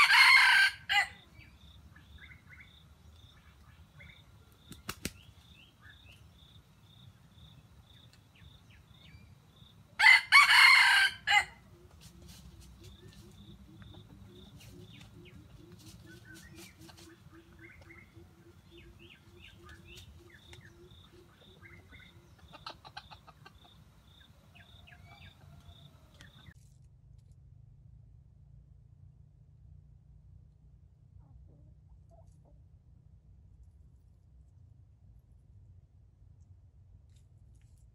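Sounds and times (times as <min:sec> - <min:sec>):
rooster crowing: 0:00.0 - 0:01.2, 0:10.0 - 0:11.6, 0:24.5 - 0:26.5
rapid low clucks: 0:11.7 - 0:24.2.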